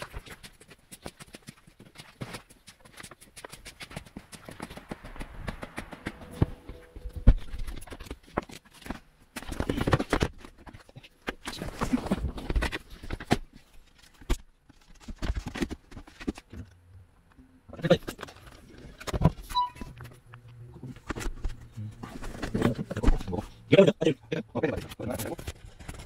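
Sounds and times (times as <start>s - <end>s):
footsteps on concrete: 0.0s - 9.4s.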